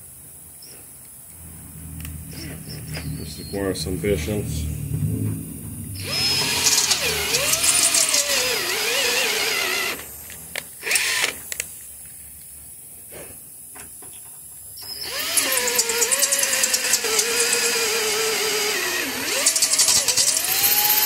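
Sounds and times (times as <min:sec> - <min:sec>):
cordless drill motor whining: 0:06.0 - 0:11.6, 0:14.9 - 0:21.0.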